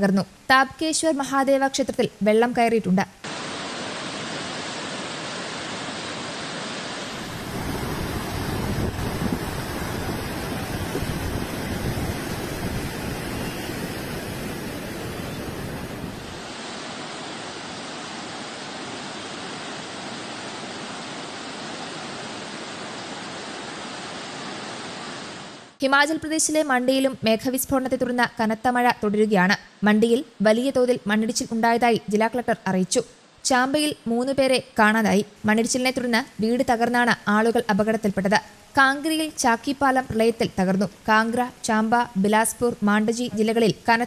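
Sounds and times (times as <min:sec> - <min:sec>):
river water rushing: 0:03.2 - 0:25.8.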